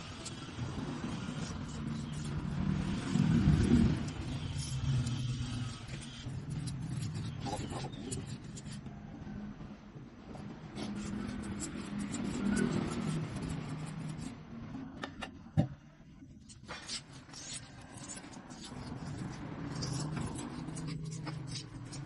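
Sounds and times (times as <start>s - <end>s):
paintbrush scrubbing on concrete: 10.7s - 14.3s, 16.5s - 22.0s.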